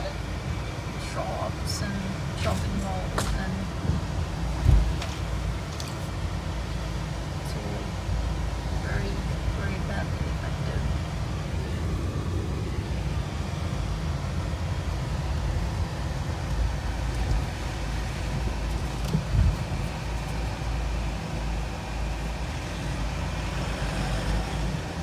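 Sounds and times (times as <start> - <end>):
engine and road rumble: 0.0 - 25.0
car bump: 2.4 - 5.3.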